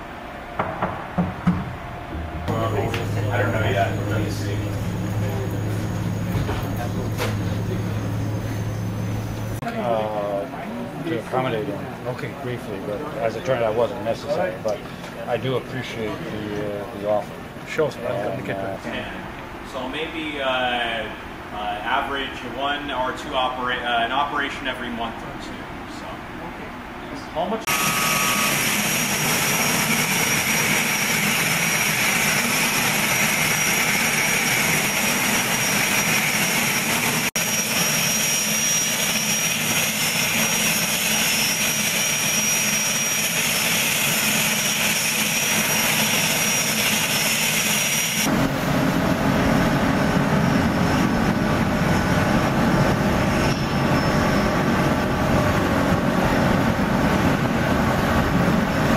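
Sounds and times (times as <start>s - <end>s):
boat engine droning: 0.0s - 23.7s, 27.7s - 58.9s
helicopter turbine whine: 0.0s - 25.2s, 27.5s - 58.9s.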